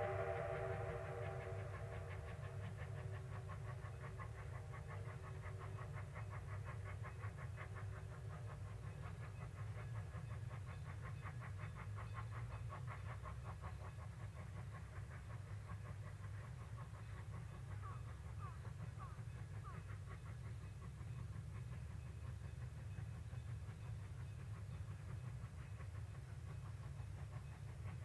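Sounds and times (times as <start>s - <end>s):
locomotive whistle: 0.0s - 3.2s
low rumble: 0.0s - 3.7s
steam locomotive chuffing: 0.0s - 28.0s.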